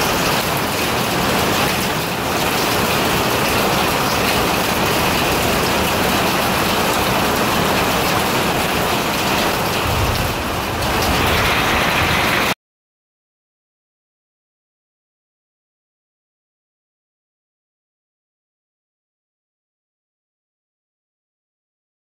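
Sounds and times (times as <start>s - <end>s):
rain and hail on a roof: 0.0s - 12.6s
low thunder rumble: 8.6s - 12.6s.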